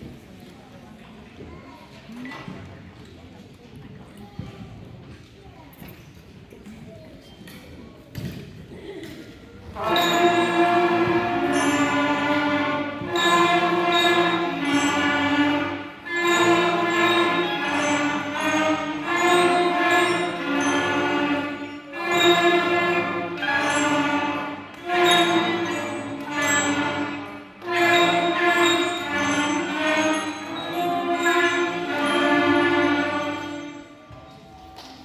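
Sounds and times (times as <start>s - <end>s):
concert band playing sustained notes: 9.7s - 34.0s.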